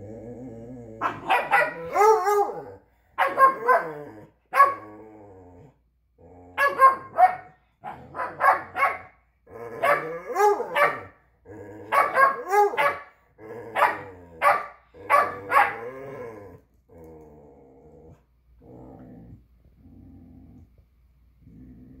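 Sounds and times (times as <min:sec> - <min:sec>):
dog barking: 0:01.0 - 0:02.6, 0:03.2 - 0:04.8, 0:06.6 - 0:09.2, 0:09.8 - 0:11.2, 0:11.9 - 0:13.2, 0:13.8 - 0:15.9
dog grumbling: 0:15.0 - 0:20.7, 0:21.4 - 0:22.0.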